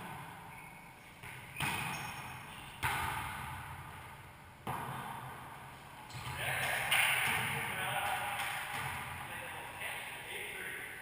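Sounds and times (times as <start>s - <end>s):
ball smacks echoing in court: 1.2s - 9.3s.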